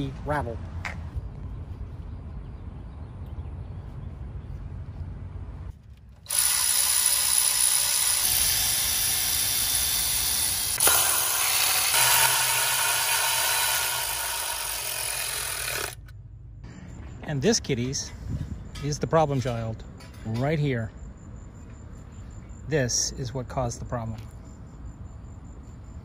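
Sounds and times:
low outdoor rumble: 0.0s - 6.3s
electric ratchet running: 6.2s - 16.1s.

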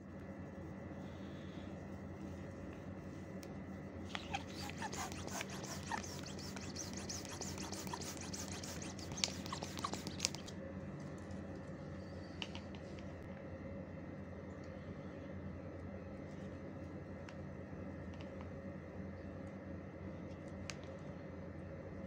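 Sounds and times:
balloons rubbing and squeaking: 4.1s - 10.5s.

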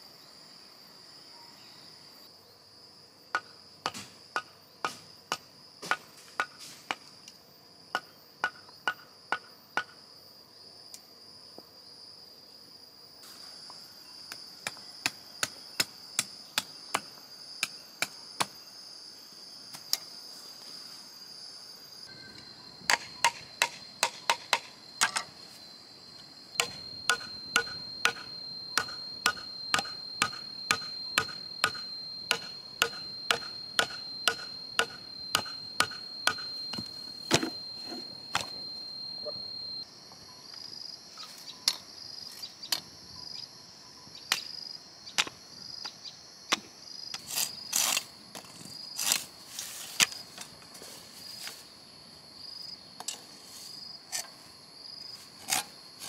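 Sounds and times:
high drone of insects: 0.0s - 56.0s
hand tool striking bamboo: 3.4s - 7.0s, 22.9s - 25.3s, 26.6s - 38.6s.

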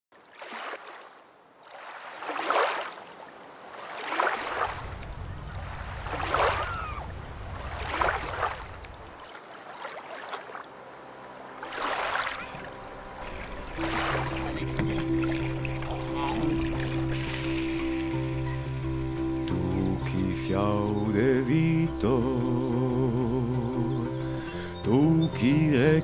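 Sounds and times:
lake water washing: 0.2s - 26.0s
motorboat engine hum: 4.6s - 26.0s
music: 10.6s - 26.0s.

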